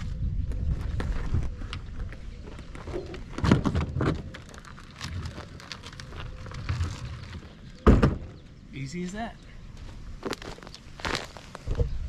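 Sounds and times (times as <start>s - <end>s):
low wind rumble: 0.0s - 8.8s
gravel crunching under wheels: 0.0s - 12.0s
footsteps on gravel: 9.8s - 11.8s.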